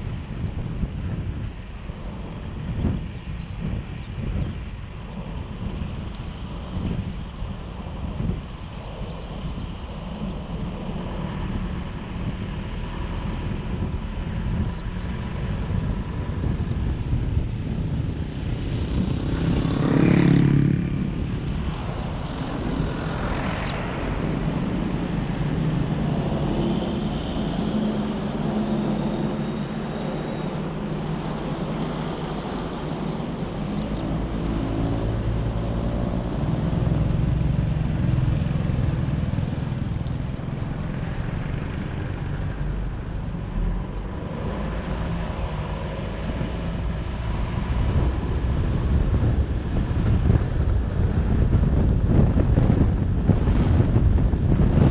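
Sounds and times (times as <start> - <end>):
tyre and wind rumble: 0.0 - 54.9
vehicle passing close: 18.3 - 54.9.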